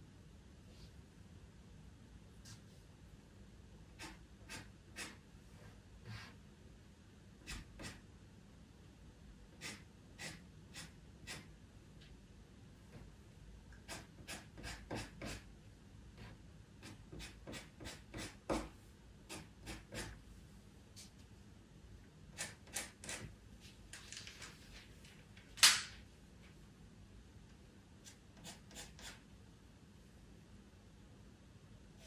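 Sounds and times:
pastel pencil scratching paper: 4.0 - 6.4, 7.4 - 8.0, 9.6 - 11.5, 13.8 - 15.5, 16.2 - 18.7, 19.3 - 20.2, 28.0 - 29.2.

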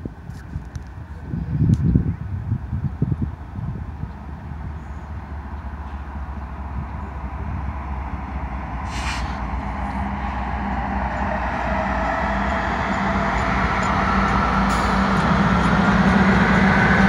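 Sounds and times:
diesel locomotive engine drone: 0.0 - 17.0
short hiss: 8.9 - 9.4.

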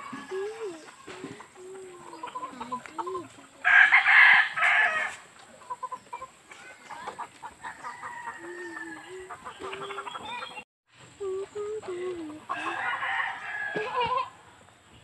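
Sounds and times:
chickens clucking: 0.0 - 14.8
rooster crowing: 3.6 - 5.2, 7.6 - 9.3, 12.5 - 14.4.

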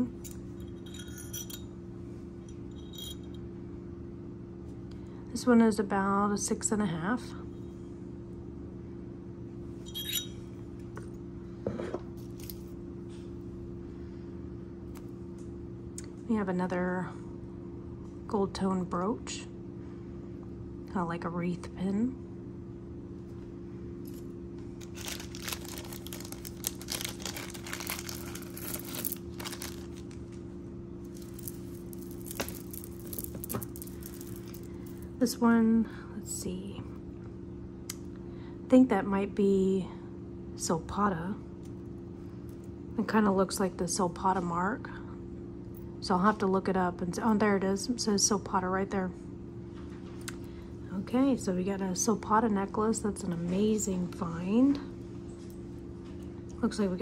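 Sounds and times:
steady low hum: 0.0 - 57.0
jewelry clinking: 0.1 - 1.7, 2.5 - 3.4, 9.8 - 10.4, 25.0 - 30.2, 31.0 - 35.1
plastic bag crinkling: 24.8 - 30.4, 31.0 - 35.1.

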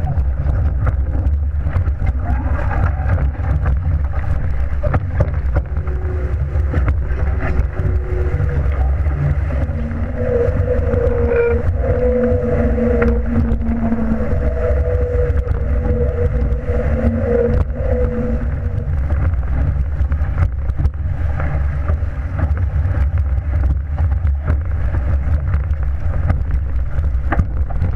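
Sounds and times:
steady hum: 0.0 - 27.9
water rushing along hull: 0.0 - 27.9
wind buffeting microphone: 0.0 - 27.9.

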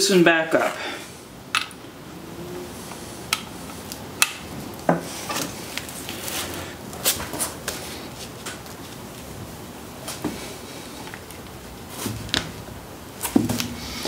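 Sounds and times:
socket wrench clicking and knocking: 1.6 - 1.8.

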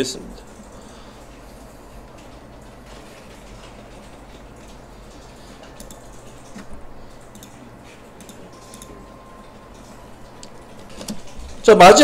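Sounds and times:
low room hum: 0.0 - 12.0
keyboard and mouse clicks: 2.2 - 7.6, 8.2 - 9.0, 9.7 - 11.6.

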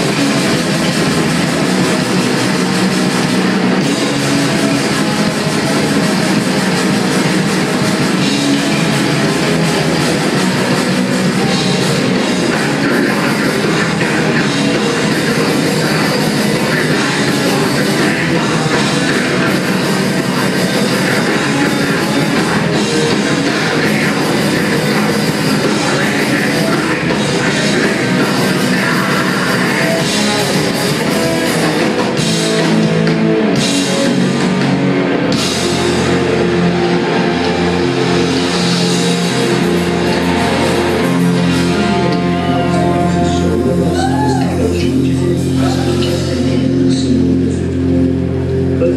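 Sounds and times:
drum kit: 0.0 - 46.8
electric guitars: 0.0 - 48.9
person singing: 9.9 - 32.3, 35.6 - 47.7.

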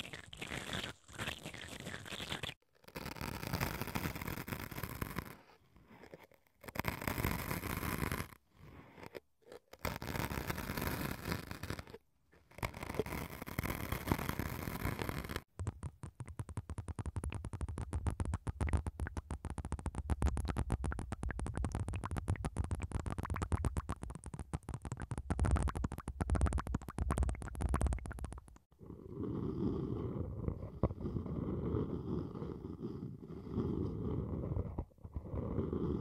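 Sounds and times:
ear pick scratching: 0.0 - 28.7
liquid crackling taps on microphone: 15.5 - 28.7.

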